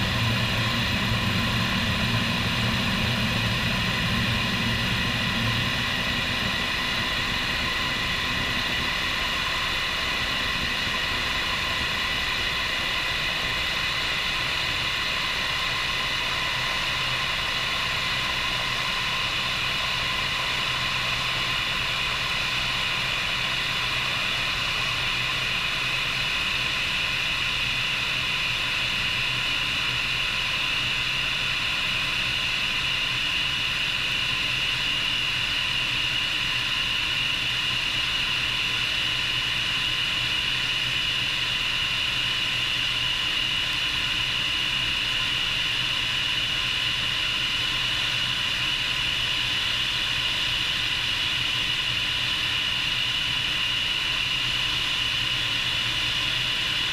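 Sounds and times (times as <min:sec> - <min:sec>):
low rumble: 0:00.0 - 0:11.3
helicopter rotor rushing noise: 0:00.0 - 0:56.9
helicopter turbine whine: 0:00.0 - 0:56.9.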